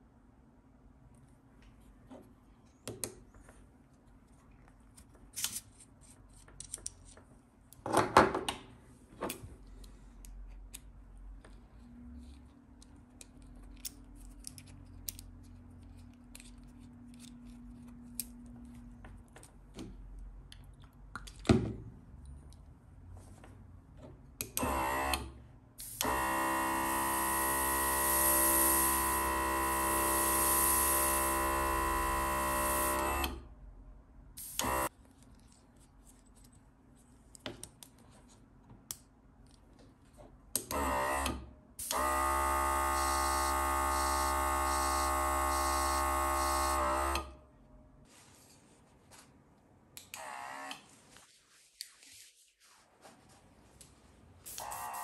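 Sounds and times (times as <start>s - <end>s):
airbrush compressor running: 25.8s - 33.3s, 34.4s - 34.9s, 41.8s - 47.3s, 54.5s - 55.0s.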